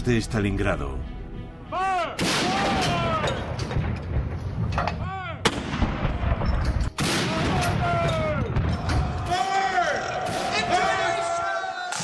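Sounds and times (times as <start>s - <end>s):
field gun firing: 2.2s - 4.0s, 5.4s - 8.8s.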